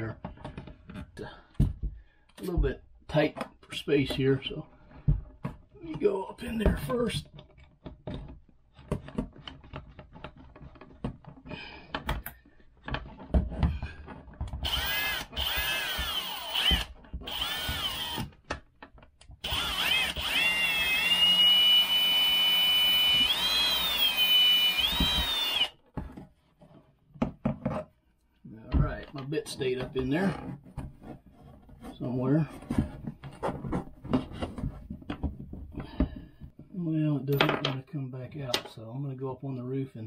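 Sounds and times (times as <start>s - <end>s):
cordless drill drilling: 14.6s - 18.4s, 19.4s - 25.8s.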